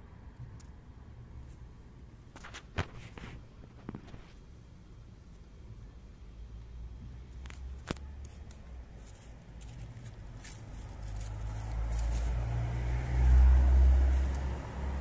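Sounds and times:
vehicle engine rumble passing: 6.5 - 15.0.

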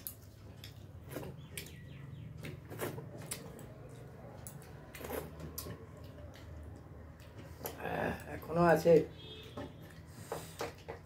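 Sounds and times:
chewing and lip smacks: 0.0 - 7.8.

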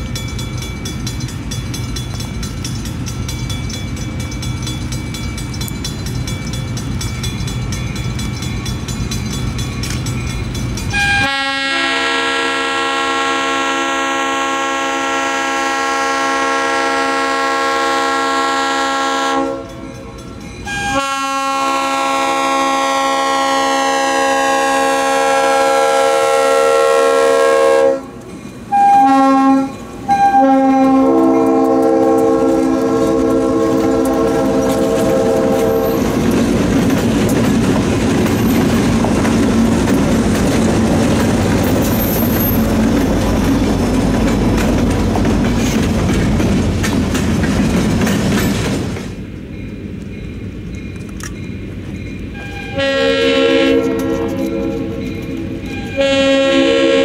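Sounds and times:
locomotive engines running: 0.0 - 11.3, 29.7 - 57.0
train wheels clacking over rail joints: 0.0 - 11.3, 30.6 - 56.4
locomotive horn blasts: 10.9 - 19.8, 20.7 - 36.1, 52.4 - 55.0, 55.6 - 57.0.

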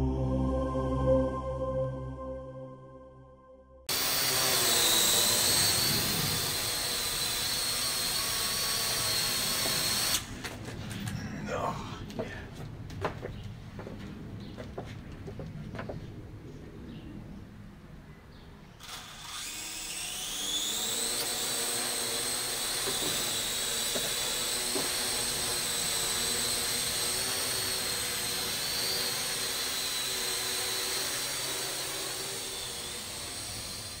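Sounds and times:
drone propellers whining: 3.9 - 12.9, 18.8 - 34.0.

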